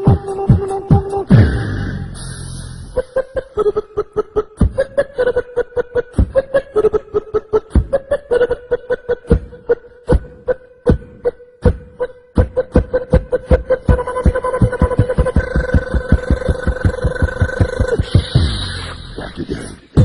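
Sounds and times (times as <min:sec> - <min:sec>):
noisy vocal effect: 0:00.0 - 0:20.0
vocal beatboxing: 0:00.0 - 0:20.0
held vocal note: 0:12.0 - 0:20.0.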